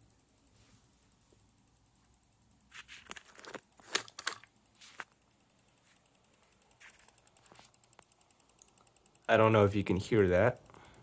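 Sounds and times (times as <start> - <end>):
power supply fan ticking: 0.0 - 11.0.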